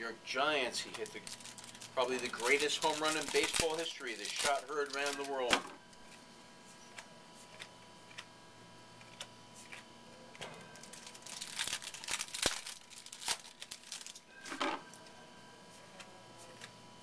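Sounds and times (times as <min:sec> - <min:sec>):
cards rustling and crinkling: 0:00.8 - 0:08.3, 0:10.7 - 0:14.8.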